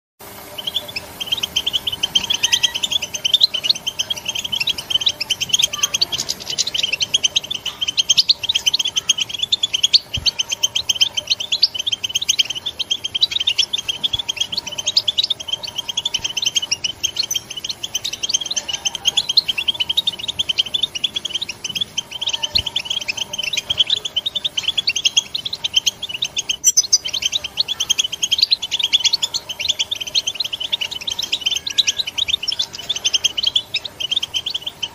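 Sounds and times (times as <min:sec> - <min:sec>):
goldfinch chirping rapidly: 0:00.2 - 0:34.9.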